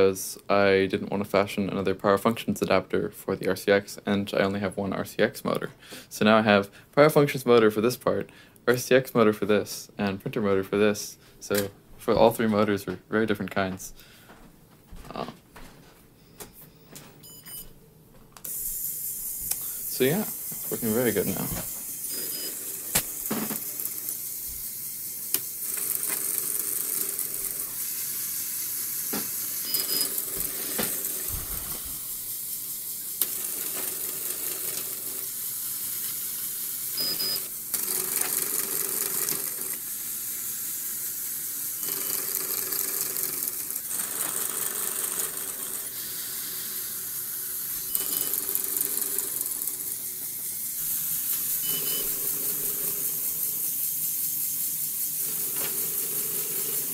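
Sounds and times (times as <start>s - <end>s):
short high beeps: 17.2s - 17.7s, 22.1s - 22.6s, 29.6s - 30.2s, 37.0s - 37.4s, 47.9s - 48.5s, 51.6s - 52.2s
small electric motors whirring: 18.5s - 56.9s.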